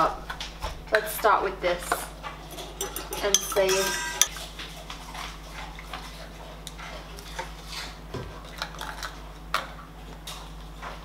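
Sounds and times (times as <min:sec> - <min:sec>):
spoon tapping glass: 0:02.8 - 0:04.3.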